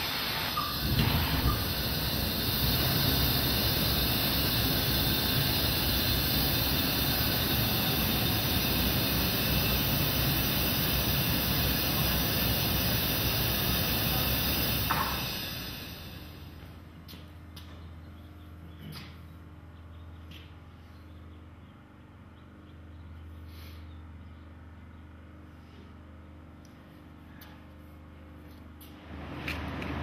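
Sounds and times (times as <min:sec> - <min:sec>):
gas burner flames rushing: 0:00.0 - 0:16.8, 0:29.0 - 0:30.0
gas igniting pops: 0:11.7 - 0:16.0.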